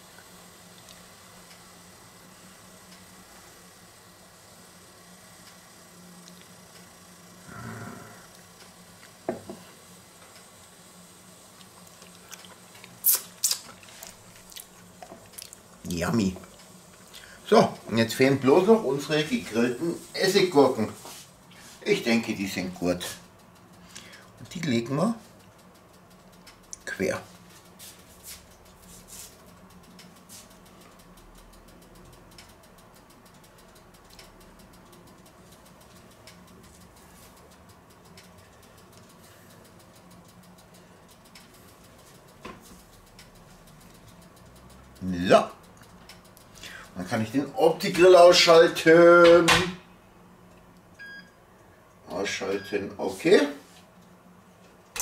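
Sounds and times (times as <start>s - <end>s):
faint low hum: 0.0s - 13.0s
steady low hum: 0.0s - 55.0s.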